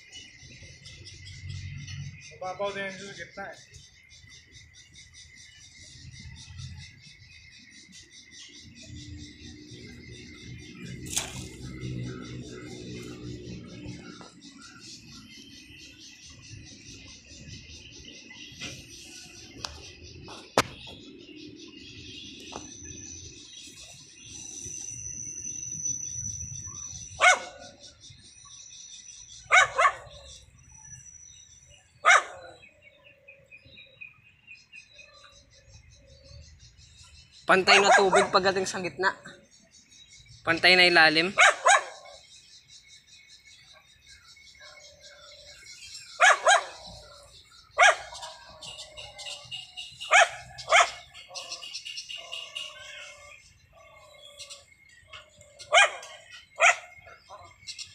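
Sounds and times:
high-pitched bird chirping: 7.9 - 57.9
dog barking: 27.2 - 27.7, 29.5 - 30.2, 32.0 - 32.6, 37.7 - 38.4, 41.3 - 42.2, 46.2 - 47.0, 47.8 - 48.5, 50.1 - 51.6, 55.7 - 57.5.

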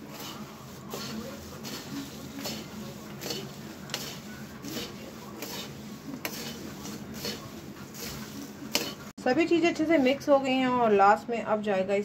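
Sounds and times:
spoon scraping in a pan: 0.0 - 9.1.

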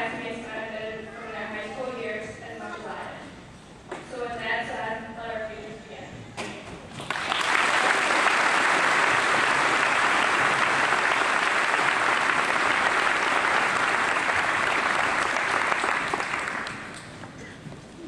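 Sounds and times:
large audience applauding: 7.0 - 17.4.

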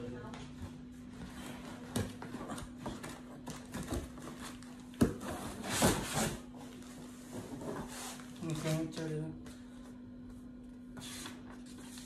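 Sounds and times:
cardboard and foam rustling: 0.6 - 9.1
cardboard and foam handled: 1.1 - 9.0.

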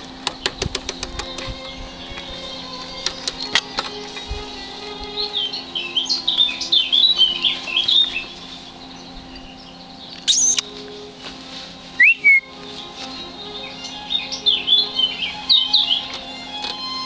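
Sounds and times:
sharp bird calls: 0.0 - 11.3, 12.0 - 17.0
songbirds chirping: 0.0 - 17.0.

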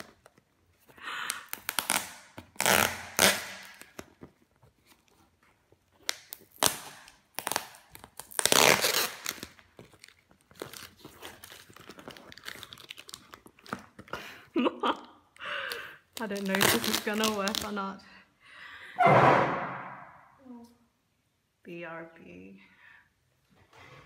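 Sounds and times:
packing tape tearing and crinkling: 0.0 - 14.2, 15.6 - 17.8.

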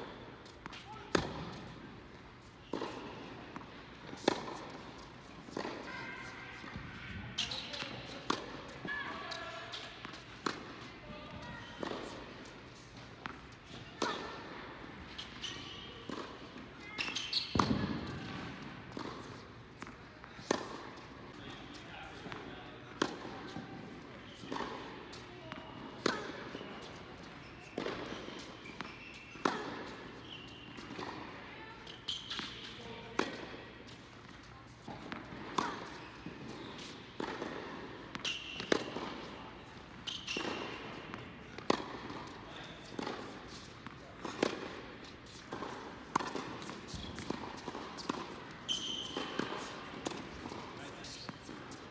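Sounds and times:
tennis shoes squeaking: 0.1 - 51.9
ball bouncing on hard court: 0.4 - 8.9, 9.7 - 12.4, 15.2 - 39.4, 40.0 - 51.8
tennis racket striking ball: 2.4 - 6.8, 7.4 - 8.8, 16.1 - 21.5, 22.1 - 30.0, 30.7 - 51.9
sneaker squeaks on court: 7.4 - 8.0, 15.1 - 16.2, 16.8 - 18.3, 26.0 - 31.0, 31.6 - 32.8, 38.2 - 39.3, 40.0 - 41.2, 46.1 - 51.5.

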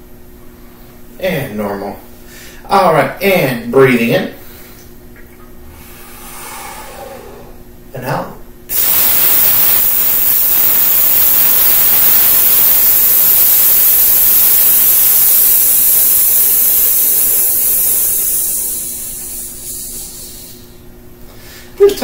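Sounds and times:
man exhaling in long hiss: 5.7 - 7.6, 8.7 - 21.8.

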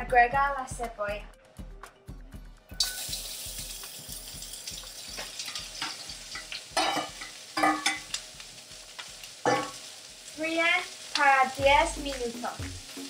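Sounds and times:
onion sizzling in oil: 2.8 - 13.0.

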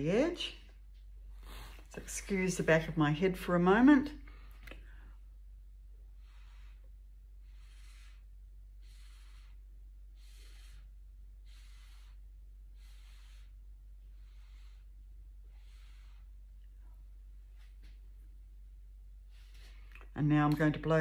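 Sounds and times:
breath puffs through a straw: 6.1 - 16.6.

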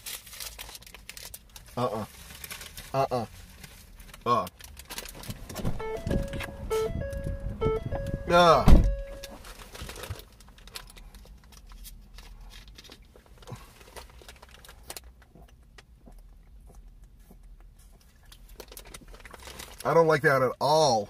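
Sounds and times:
low steady hum: 3.8 - 19.8.

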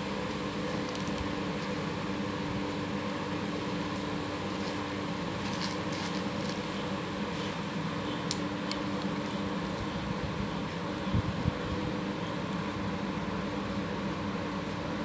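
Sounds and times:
steady mechanical hum: 0.0 - 15.0
plastic wrapping crinkling: 0.7 - 1.8, 4.5 - 6.8.

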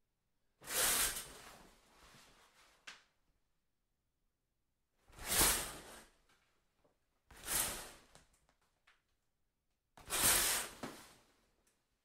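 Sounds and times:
shower curtain swishing: 5.1 - 6.2, 7.4 - 8.1, 10.0 - 11.2.

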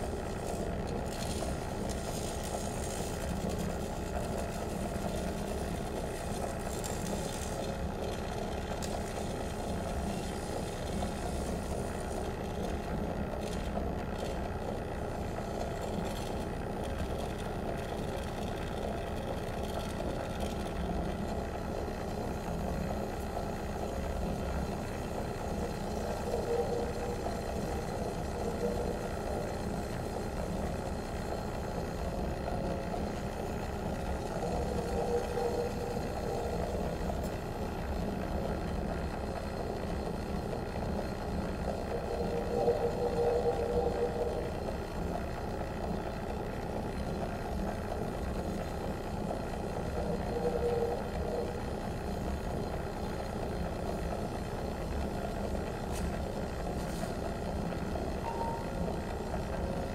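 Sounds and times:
dense low drone: 25.2 - 38.7, 41.0 - 45.9, 58.2 - 59.0
mid-pitched swelling tone: 58.2 - 58.9.

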